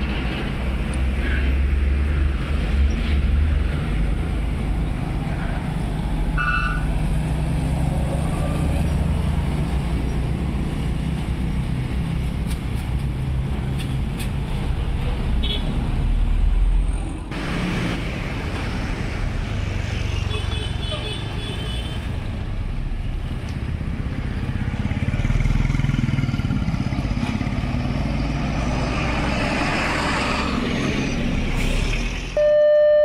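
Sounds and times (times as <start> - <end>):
vehicle engines running: 22.1 - 32.4
car horn toot: 32.4 - 33.0.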